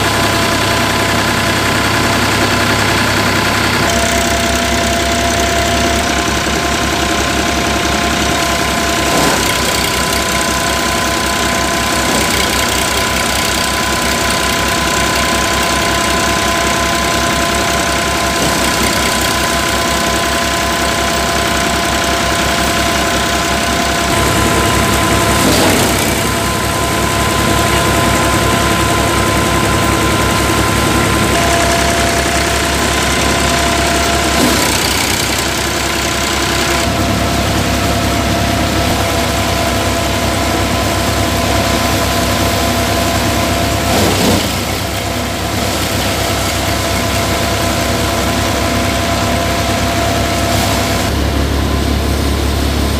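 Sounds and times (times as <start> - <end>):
thresher drum whine: 0.0 - 52.9
tractor engine under load: 0.0 - 52.9
rushes of bundles fed into drum: 24.1 - 27.0, 42.2 - 46.3.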